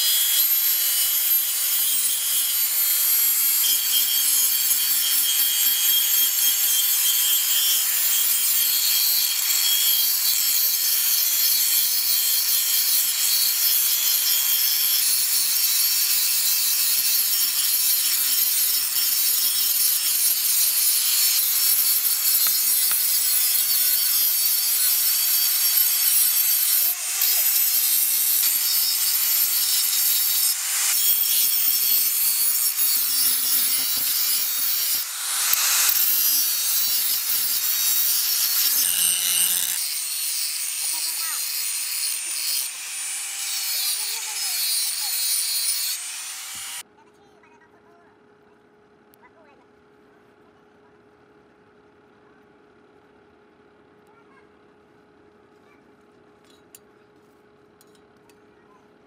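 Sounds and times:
angle grinder grinding metal: 0.0 - 46.9.

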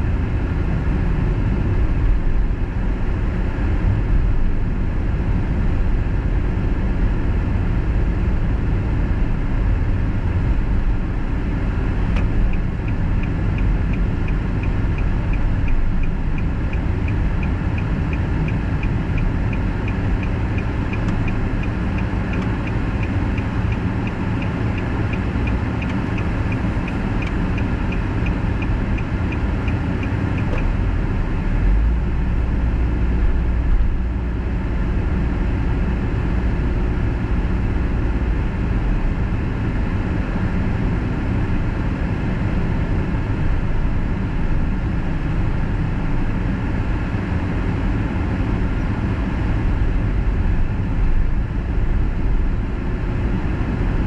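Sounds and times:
car road and engine noise: 0.0 - 54.0
deep rumble: 0.0 - 54.0
turn signal ticking: 11.7 - 30.9.

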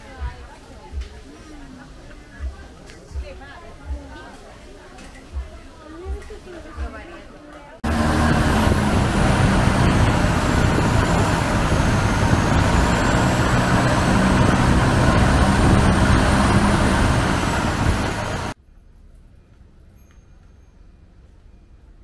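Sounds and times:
boat engine drone: 7.8 - 18.6
high whine: 7.8 - 18.6.

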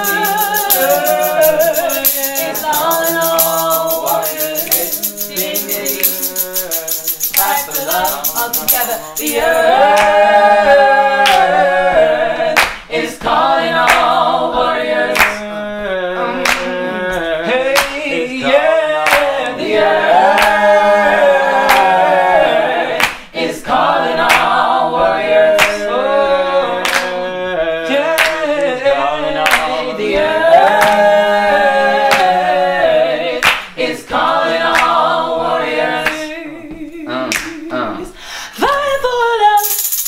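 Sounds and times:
hand claps: 0.0 - 10.2, 11.2 - 11.5, 12.6 - 12.9, 13.8 - 14.2, 15.1 - 15.4, 16.4 - 16.7, 17.7 - 18.0, 19.0 - 19.4, 20.2 - 20.8, 21.6 - 22.0, 23.0 - 23.2, 24.2 - 24.6, 25.5 - 25.8, 26.8 - 27.1, 28.1 - 28.4, 29.4 - 29.7, 30.7 - 31.1, 32.0 - 32.4, 33.4 - 33.7, 34.6 - 35.0, 37.3 - 37.6
choir singing in harmony: 0.0 - 38.2.

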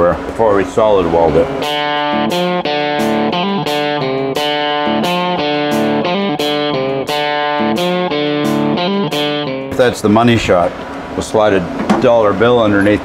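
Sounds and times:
guitar playing rhythmic riff: 0.8 - 11.1.

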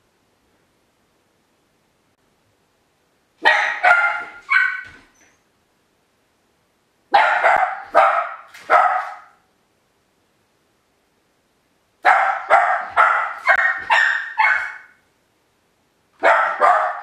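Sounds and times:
small dog barking: 3.4 - 5.1, 7.1 - 9.5, 12.0 - 15.0, 16.2 - 17.0.

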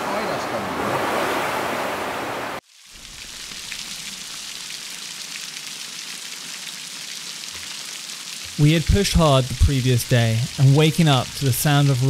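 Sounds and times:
tidal wave rushing water: 0.0 - 3.9
rain on a tent: 0.0 - 12.0.

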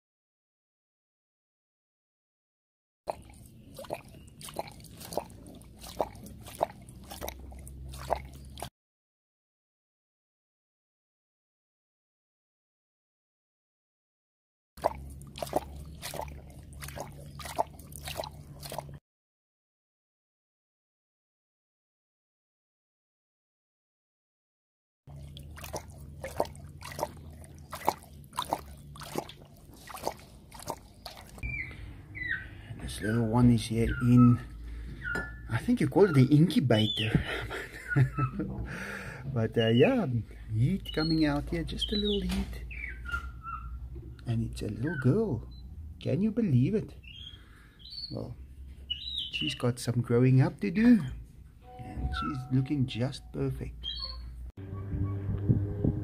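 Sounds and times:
tiger lapping water from metal bowl: 3.1 - 8.7, 14.8 - 19.0, 25.1 - 31.9.

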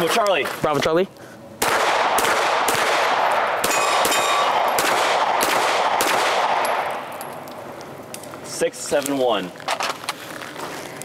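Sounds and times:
airsoft pistol shots: 1.6 - 7.1
steel target ringing: 3.6 - 4.9.

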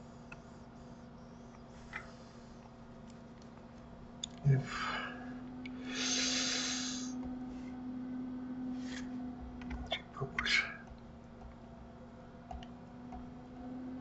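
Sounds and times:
faint steady hum: 0.0 - 14.0
person exhaling through nose: 5.8 - 7.2.

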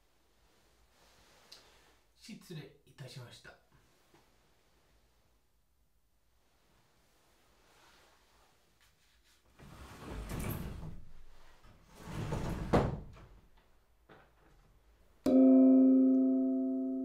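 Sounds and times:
sliding door on wooden track: 9.6 - 13.4
bell-like chime ringing: 15.3 - 17.0.

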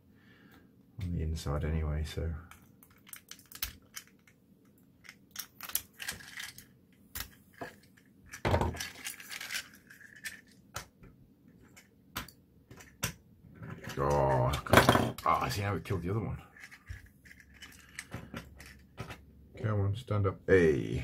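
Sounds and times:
plastic crunch: 5.0 - 10.6.

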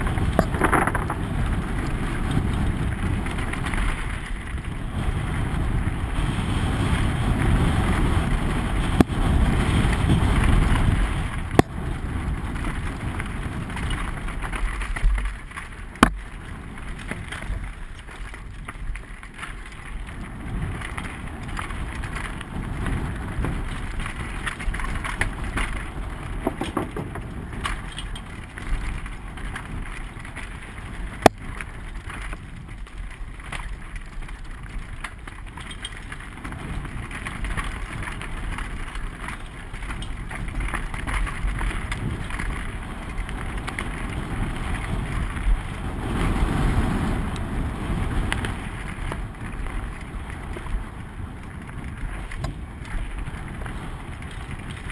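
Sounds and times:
bike rattling: 0.0 - 54.9
tyres rolling over stones: 0.0 - 54.9
wind on microphone: 0.0 - 54.9.

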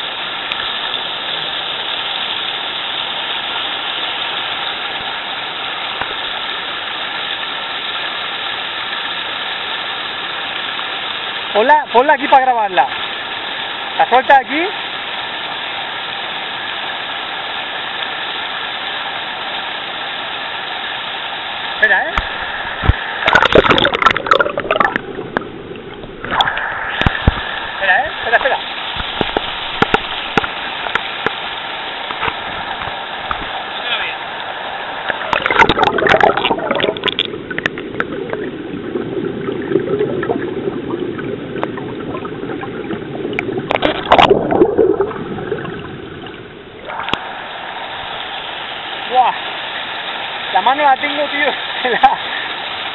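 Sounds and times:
river water splashing: 0.0 - 52.9.

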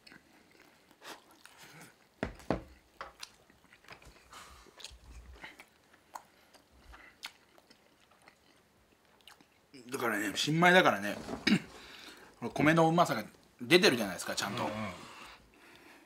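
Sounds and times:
man chewing food: 0.0 - 10.0.

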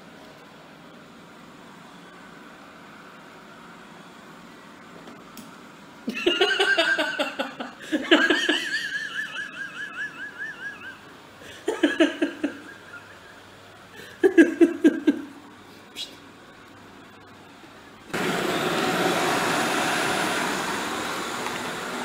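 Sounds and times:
person laughing: 6.1 - 15.4
high wavering squeal: 9.3 - 11.1.

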